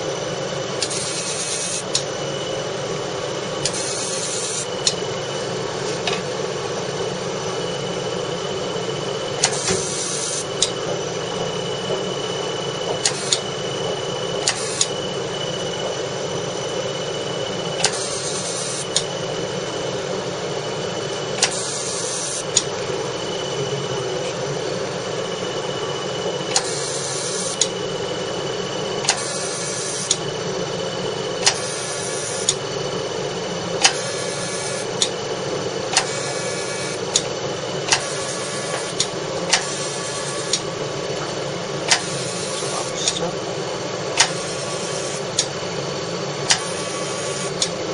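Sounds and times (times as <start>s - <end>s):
laser machine hum: 0.0s - 47.9s
hissing scan pulses: 3.6s - 4.9s, 7.6s - 19.7s, 21.3s - 30.2s, 31.4s - 32.6s, 33.8s - 35.0s, 36.0s - 37.1s, 37.9s - 40.7s, 41.8s - 43.4s, 44.2s - 45.4s, 46.6s - 47.6s
machine clicks: 41.9s - 43.2s.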